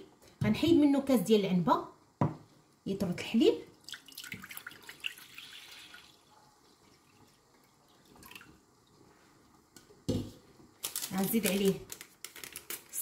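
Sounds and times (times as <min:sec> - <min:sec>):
milk pouring into saucepan: 0:03.7 - 0:09.6.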